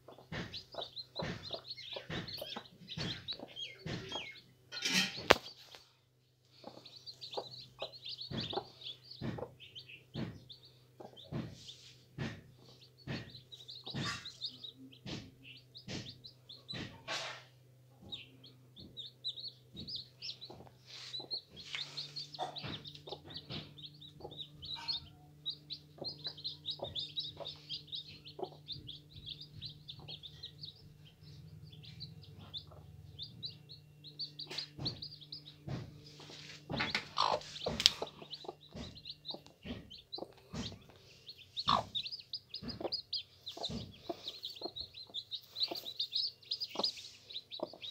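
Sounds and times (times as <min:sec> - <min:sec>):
chicks peeping: 0:00.0 - 0:05.9, 0:06.5 - 0:47.9.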